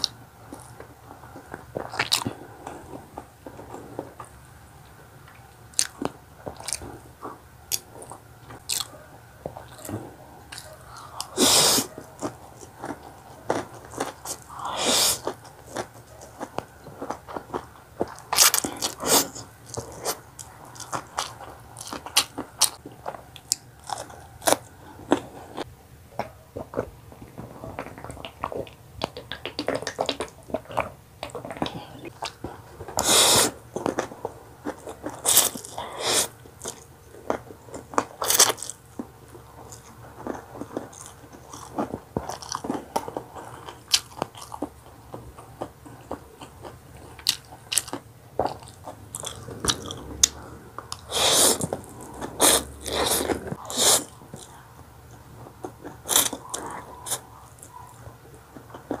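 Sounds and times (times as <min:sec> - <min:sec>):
wet chewing and lip smacks: 0:05.3 - 0:26.9, 0:27.8 - 0:59.0
slurps or gulps: 0:48.7 - 0:54.2.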